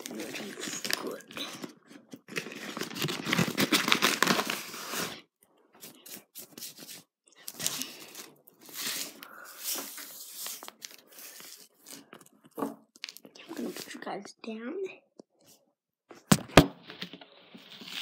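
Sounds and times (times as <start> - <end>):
packaging crinkling: 0.0 - 5.2.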